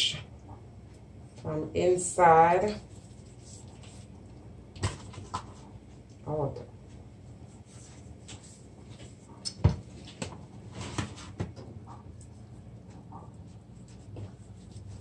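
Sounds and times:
wet hands rubbing fish: 0:02.8 - 0:04.5, 0:12.1 - 0:15.0.

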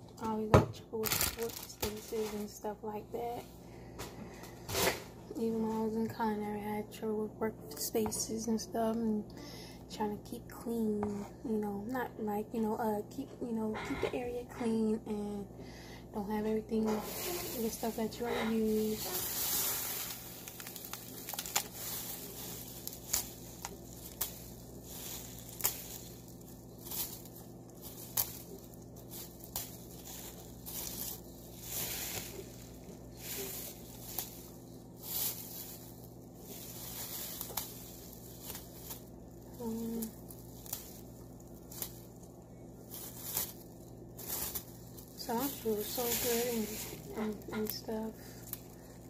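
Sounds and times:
plastic bags crinkling: 0:01.0 - 0:03.4, 0:16.1 - 0:49.0.

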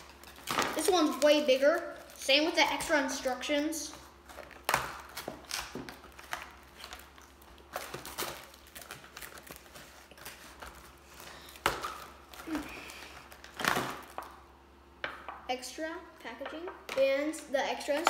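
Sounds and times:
packaging rustling and crinkling: 0:04.2 - 0:14.3.

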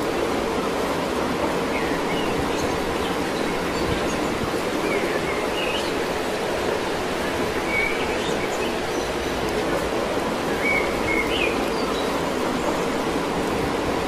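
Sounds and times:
rushing outdoor background noise: 0:00.0 - 0:14.0.

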